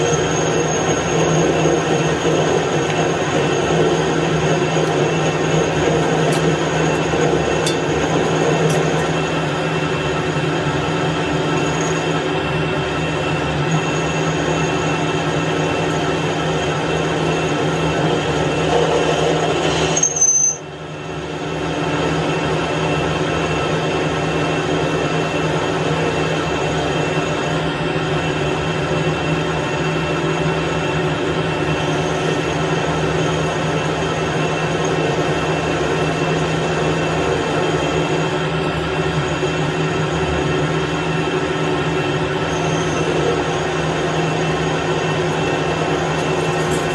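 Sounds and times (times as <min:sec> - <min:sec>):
high squeal: 0:00.0 - 0:07.6, 0:08.2 - 0:15.9, 0:19.4 - 0:20.7, 0:42.2 - 0:46.9
metal lathe cutting steel: 0:00.0 - 0:46.9.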